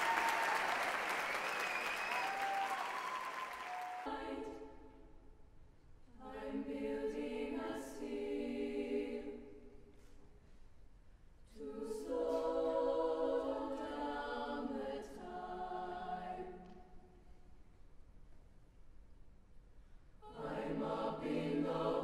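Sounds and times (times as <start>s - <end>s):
mixed choir singing a cappella: 3.9s - 5.0s, 6.1s - 9.8s, 11.5s - 16.8s, 20.2s - 22.0s.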